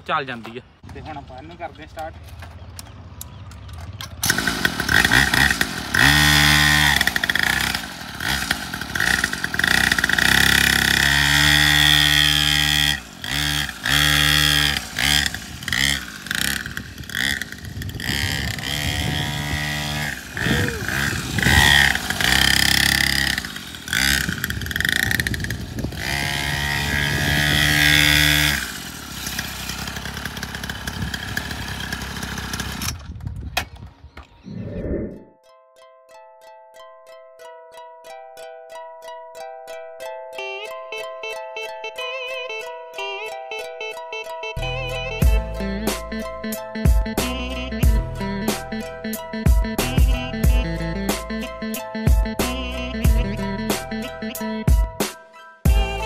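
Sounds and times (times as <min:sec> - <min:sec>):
small dirt bike engine revving: 0:02.9 - 0:33.8.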